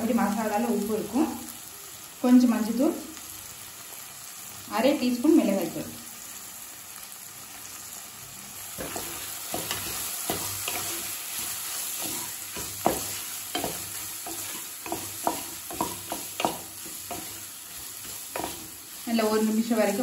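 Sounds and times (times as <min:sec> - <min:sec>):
frying hiss in oil: 0:00.0 - 0:20.0
spatula scraping and tapping pan: 0:08.8 - 0:19.0.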